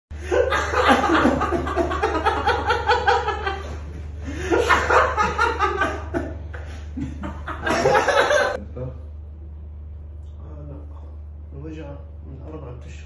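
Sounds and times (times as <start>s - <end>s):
man laughing hysterically: 0.2s - 8.6s.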